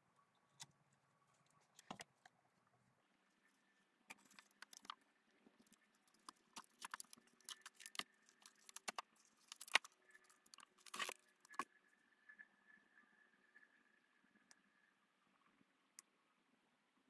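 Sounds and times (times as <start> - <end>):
light clicks and crackles: 0.2 - 2.5, 3.3 - 11.7.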